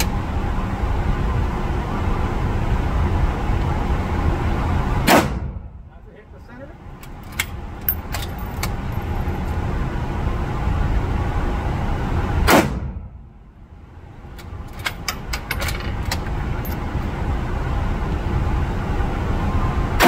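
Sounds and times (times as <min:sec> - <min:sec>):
steady rumbling noise: 0:00.0 - 0:20.0
rifle gunshot: 0:05.1 - 0:05.6, 0:12.5 - 0:13.0.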